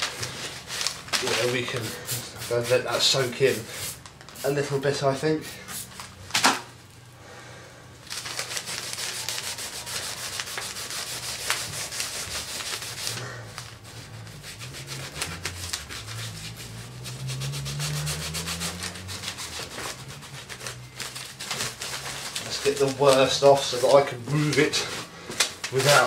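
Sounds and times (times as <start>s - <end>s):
cloth rubbing on metal: 0.0s - 6.0s, 8.4s - 25.1s, 25.7s - 26.0s
low hum rising in pitch: 14.2s - 20.6s.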